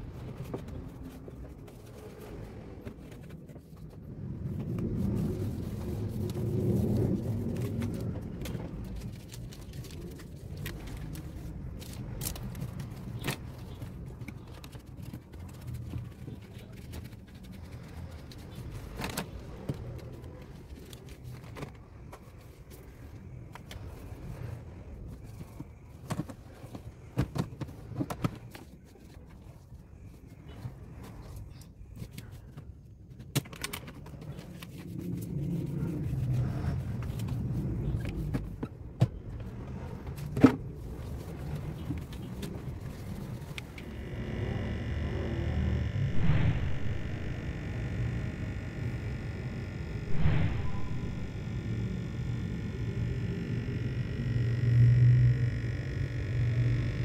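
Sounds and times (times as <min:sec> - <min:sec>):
steady low rumble: 0:00.0 - 0:21.2, 0:34.4 - 0:57.0.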